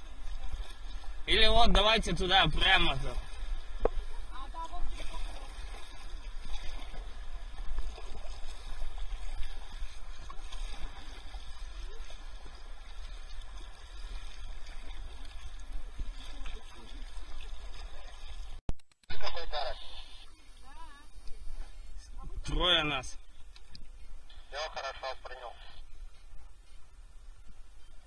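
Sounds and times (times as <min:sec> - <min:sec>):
paddles splashing in water: 0:00.0 - 0:18.6.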